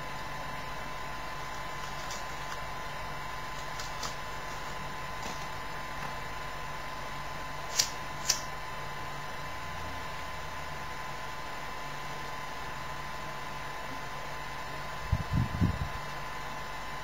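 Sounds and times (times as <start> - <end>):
microphone hiss and hum: 14.9 - 16.7.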